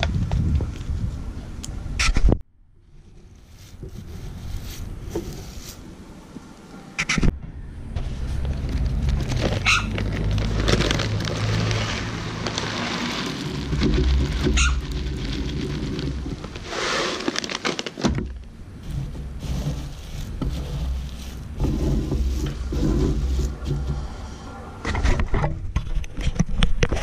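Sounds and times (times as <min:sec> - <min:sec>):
low rumble: 0:07.3 - 0:16.7, 0:18.1 - 0:25.3
plastic bags crinkling: 0:08.4 - 0:18.5, 0:19.2 - 0:22.7
seeds rattling in metal cup: 0:08.8 - 0:17.8.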